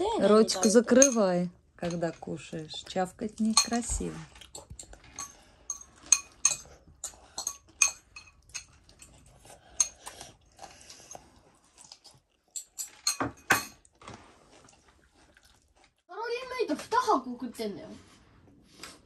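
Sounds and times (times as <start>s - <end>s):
child chewing noisily: 4.2s - 13.1s, 13.8s - 16.1s.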